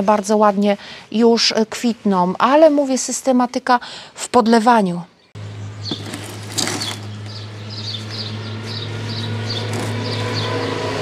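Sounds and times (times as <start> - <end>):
small bird chirping: 5.1 - 10.6
low hum: 5.3 - 11.0.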